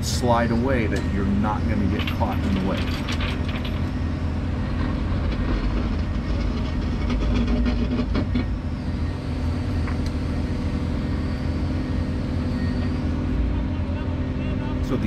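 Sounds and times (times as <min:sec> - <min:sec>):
excavator engine and hydraulics: 0:00.0 - 0:15.0
metal clanks: 0:01.9 - 0:03.9
chain rattles: 0:02.0 - 0:03.9.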